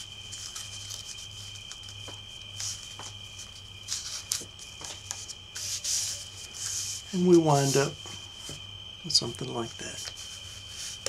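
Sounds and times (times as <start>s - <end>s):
paper money rustling: 0.3s - 2.0s, 2.6s - 8.0s
light ticks of handled bill: 0.3s - 8.0s, 9.2s - 11.0s.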